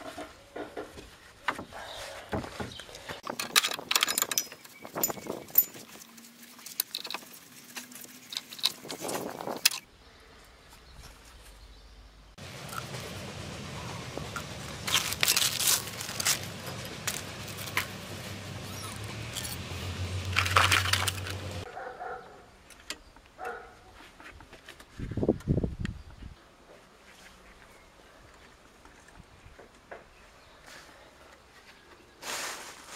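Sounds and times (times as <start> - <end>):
metallic clinks of hand tools: 3.4 - 5.9.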